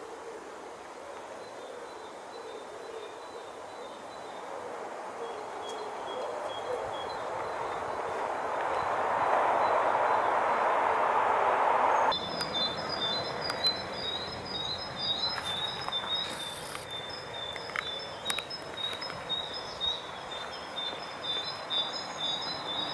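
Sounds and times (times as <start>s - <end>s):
small birds chirping: 5.1s - 10.8s, 12.0s - 22.9s
faint clicks: 15.3s - 19.4s.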